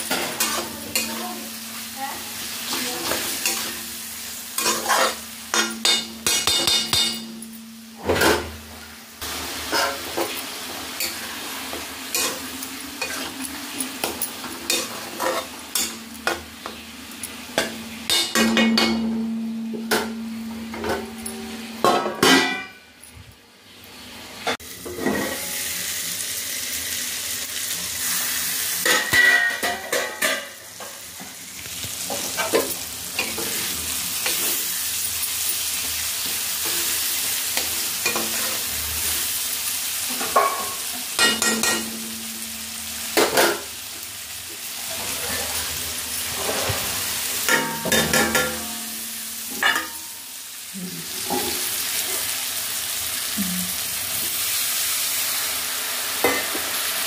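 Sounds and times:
sauce sizzling in a pan: 0:00.0 - 0:08.0, 0:08.6 - 0:21.9, 0:23.6 - 0:57.0
metal spatula scraping a pan: 0:04.6 - 0:08.3, 0:09.6 - 0:10.4, 0:12.1 - 0:16.8, 0:44.8 - 0:50.0.

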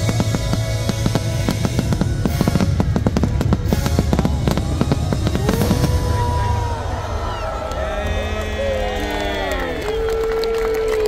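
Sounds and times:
loud show music: 0:00.0 - 0:07.1
fireworks bursting and crackling: 0:00.0 - 0:10.0
low rumble: 0:00.0 - 0:10.3.

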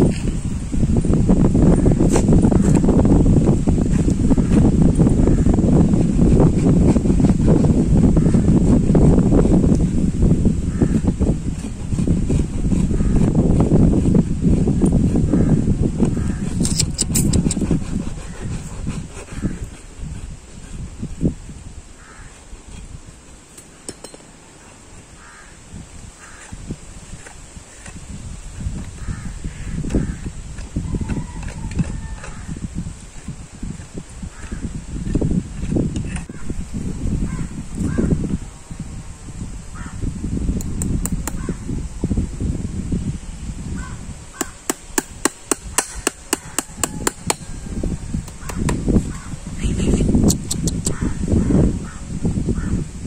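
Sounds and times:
crows cawing: 0:22.0 - 0:22.4, 0:25.2 - 0:25.6, 0:26.2 - 0:26.4, 0:48.4 - 0:49.4
hammer tapping horseshoe nails: 0:23.6 - 0:24.4, 0:44.4 - 0:47.5
sharp clicks: 0:50.2 - 0:51.0.

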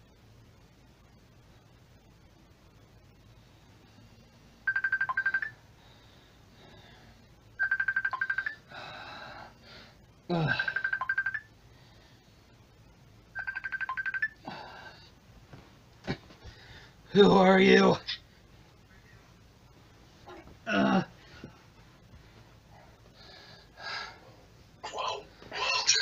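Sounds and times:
telephone ringing electronic trill: 0:04.6 - 0:05.6, 0:07.6 - 0:08.7, 0:10.5 - 0:11.5, 0:13.3 - 0:14.4.

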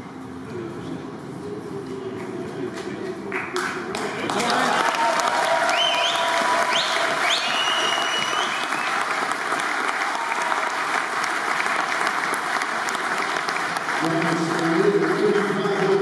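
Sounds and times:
audience applauding: 0:03.3 - 0:16.0.

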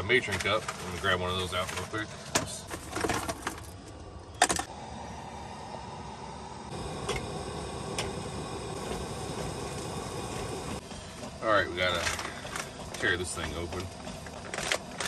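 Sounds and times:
items clicking and knocking: 0:00.1 - 0:04.7, 0:11.2 - 0:15.0
stove burner hissing: 0:04.3 - 0:15.0.

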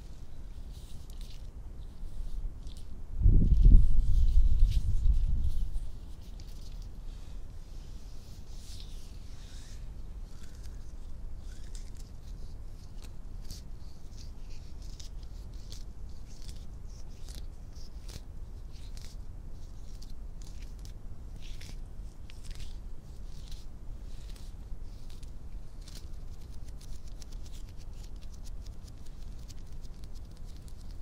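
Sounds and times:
fingernails scratching: 0:08.3 - 0:16.6.

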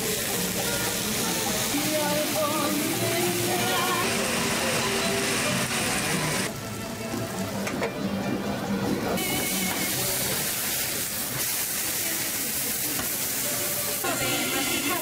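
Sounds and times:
food sizzling on griddle: 0:00.0 - 0:07.8, 0:09.2 - 0:15.0
music playing: 0:00.0 - 0:10.4.

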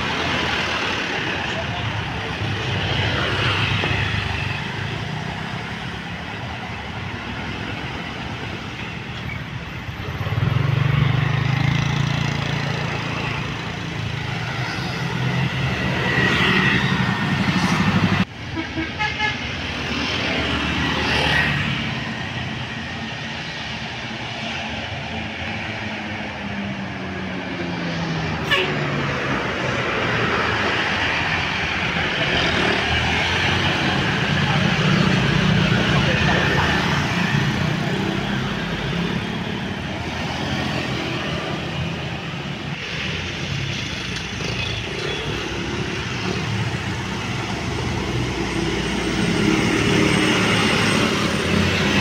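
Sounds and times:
diesel bus engines pulling away: 0:21.8 - 0:52.0
horn toots: 0:28.4 - 0:28.9.

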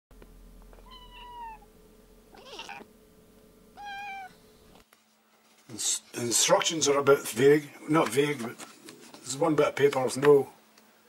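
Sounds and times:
cat meowing: 0:00.8 - 0:01.7, 0:02.3 - 0:02.9, 0:03.8 - 0:04.4.

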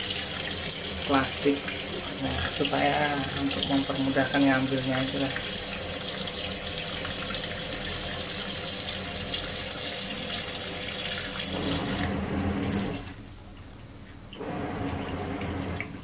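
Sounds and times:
water pouring into washing machine: 0:00.0 - 0:16.0.

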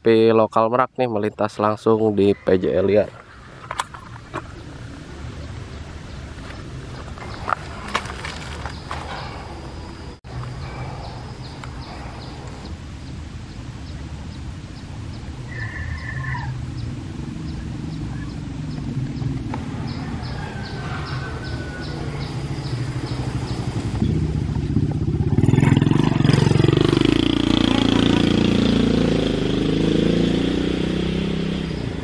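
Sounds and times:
motorcycle engine passing: 0:16.8 - 0:32.0.

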